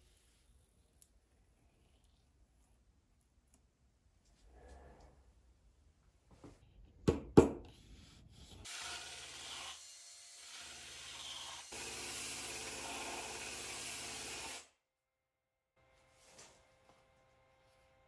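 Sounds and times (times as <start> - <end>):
rotary tool motor hum: 8.7 - 14.7.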